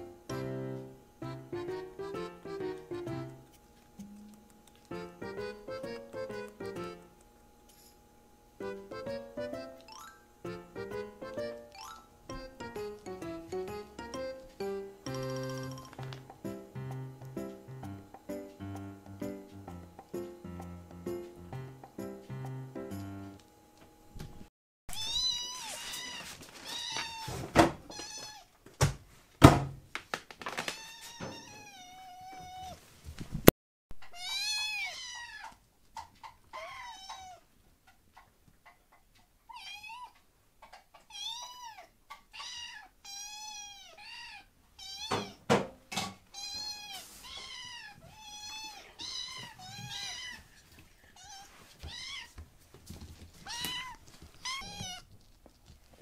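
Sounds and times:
kittens meowing: 36.5 - 37.4, 41.1 - 45.4, 46.4 - 50.4, 53.5 - 55.0.

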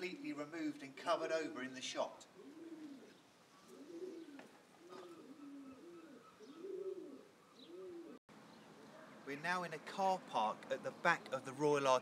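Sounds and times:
pigeon cooing: 2.3 - 8.2.

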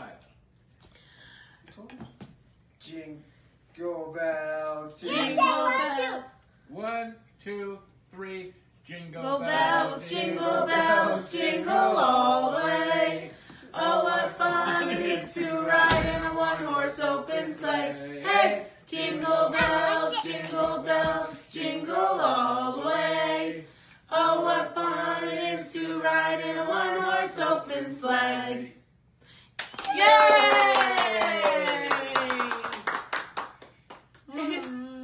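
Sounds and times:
voices singing wordless tune: 9.2 - 28.8
short thump: 15.9 - 16.3.

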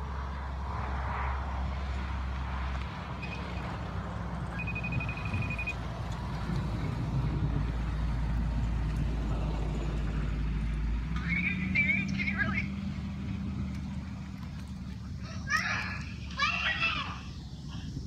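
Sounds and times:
wind buffeting microphone: 0.1 - 10.9
high electronic beeps: 4.5 - 5.8.

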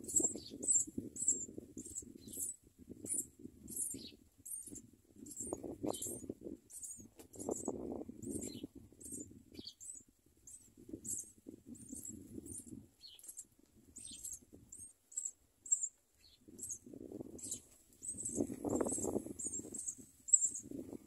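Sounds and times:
nestling birds chirping: 0.0 - 21.0
rustling in nest: 17.4 - 20.8.

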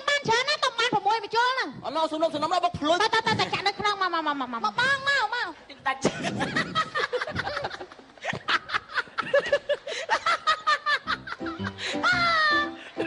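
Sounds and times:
people laughing: 6.0 - 13.0.

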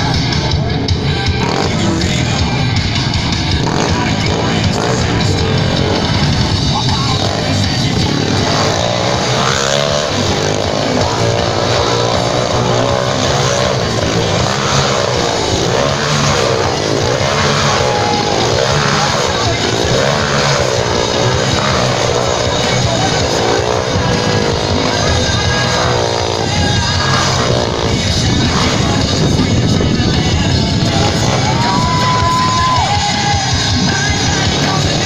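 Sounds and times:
motorcycle engines revving: 0.0 - 35.0
rock music: 0.0 - 35.0.

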